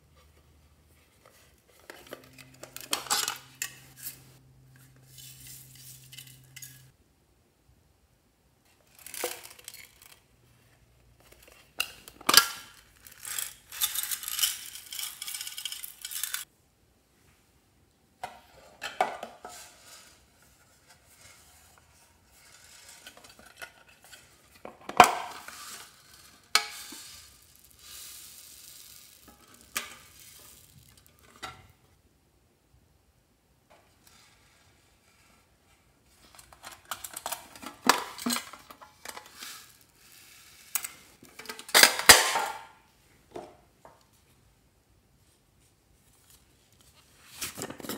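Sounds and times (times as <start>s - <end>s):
beads rustling inside tins: 1.4s - 6.9s, 8.7s - 10.3s, 11.0s - 16.5s, 19.4s - 31.4s, 36.2s - 42.4s.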